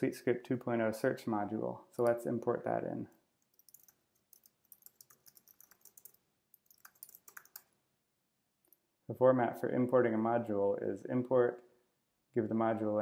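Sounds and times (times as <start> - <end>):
typing on computer keyboard: 3.4 - 7.7.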